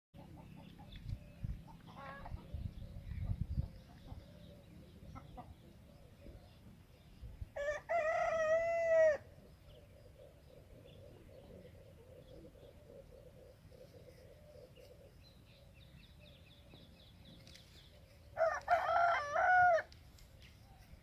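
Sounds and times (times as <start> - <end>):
rooster crowing: 7.6 - 9.2, 18.4 - 19.9.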